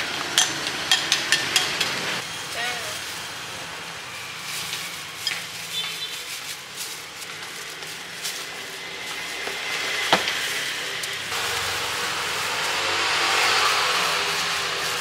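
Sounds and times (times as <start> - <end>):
bowls and utensils clinking: 0.3 - 2.0.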